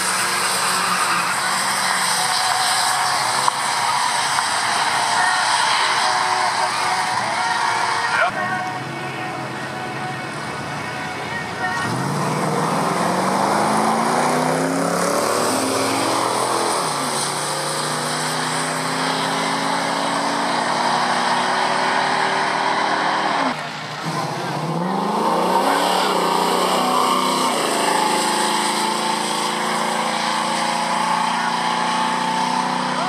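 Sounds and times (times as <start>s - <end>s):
race car engines accelerating: 0.0s - 33.0s
car engine accelerating past: 11.8s - 33.0s.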